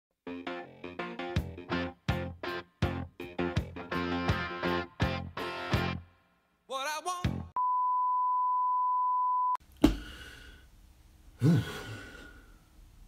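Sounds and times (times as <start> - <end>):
guitar music: 0.2 - 6.0.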